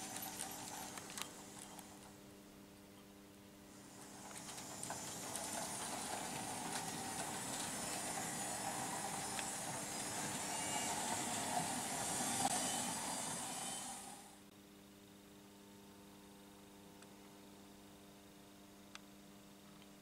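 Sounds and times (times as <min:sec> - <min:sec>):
model train rattling on track: 0:00.0 - 0:02.0, 0:03.8 - 0:14.4
wheels clicking over rail joints: 0:00.0 - 0:02.1, 0:03.9 - 0:14.2.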